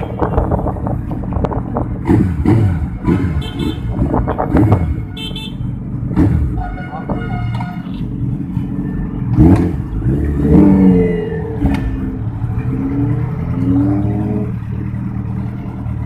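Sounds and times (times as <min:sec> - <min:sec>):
motorcycle engine revving: 0:01.8 - 0:16.0.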